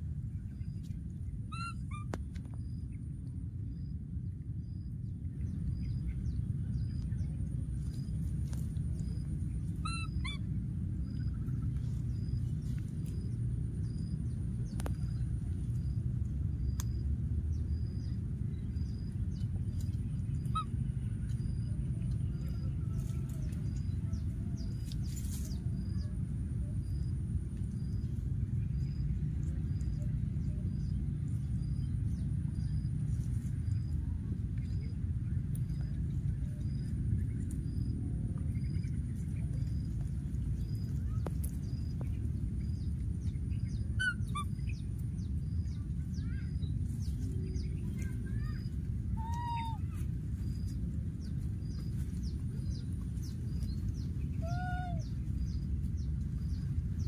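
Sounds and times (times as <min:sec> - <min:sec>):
low outdoor rumble: 0:00.0 - 0:57.0
high-pitched animal call: 0:09.8 - 0:10.5.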